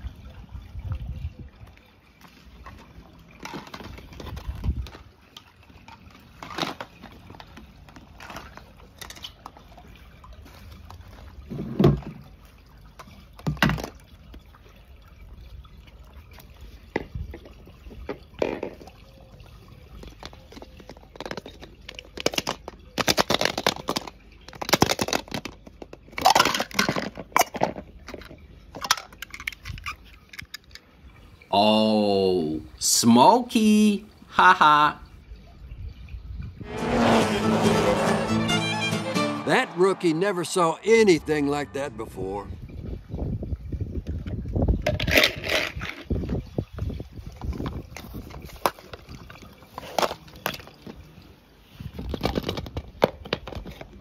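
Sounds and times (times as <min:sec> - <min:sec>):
water splashing and trickling: 0:00.0 - 0:36.8, 0:39.5 - 0:54.0
toy cars knocking and scraping: 0:20.0 - 0:30.8, 0:52.0 - 0:54.0.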